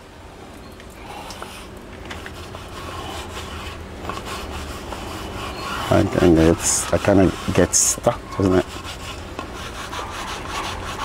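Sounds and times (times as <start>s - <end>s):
low steady hum: 0.0s - 11.0s
spatula scraping frying pan: 2.2s - 11.0s.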